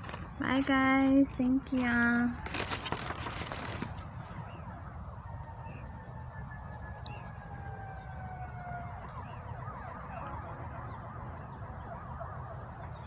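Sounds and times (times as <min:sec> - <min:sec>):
emergency vehicle siren: 0:03.7 - 0:13.0.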